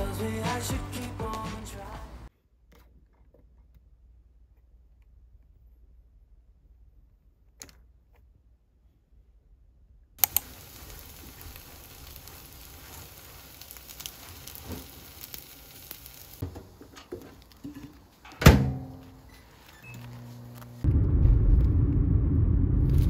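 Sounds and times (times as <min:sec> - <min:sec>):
eggs sizzling in a pan: 0:10.2 - 0:18.2.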